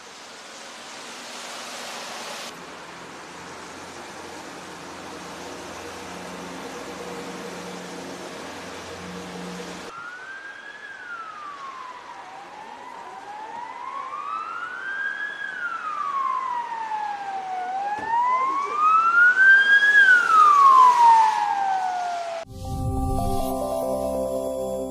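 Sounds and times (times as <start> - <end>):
emergency siren wailing: 5.3 - 24.9.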